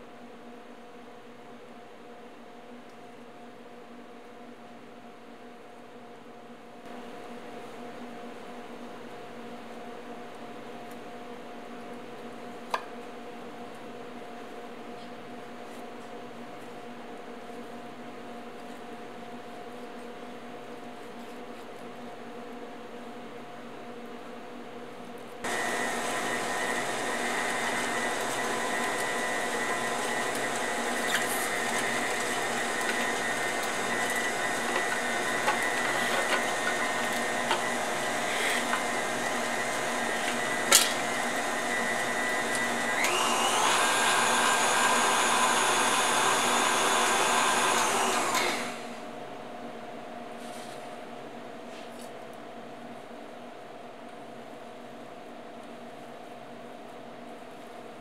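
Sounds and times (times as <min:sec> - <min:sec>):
stand mixer motor whine: 0:25.5 - 0:49.1.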